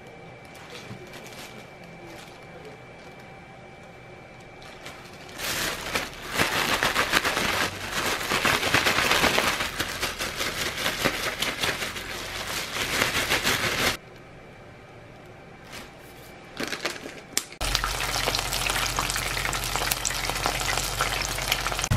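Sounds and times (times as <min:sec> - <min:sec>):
plastic bag crinkling and rustling: 0:00.6 - 0:03.2, 0:04.6 - 0:14.0, 0:15.7 - 0:19.4.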